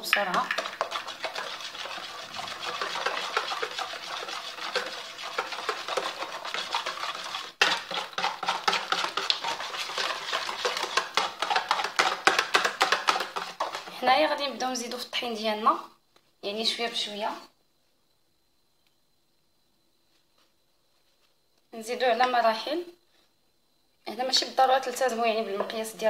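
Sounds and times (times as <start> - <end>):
whisk clicking and scraping bowl: 0.0 - 14.2.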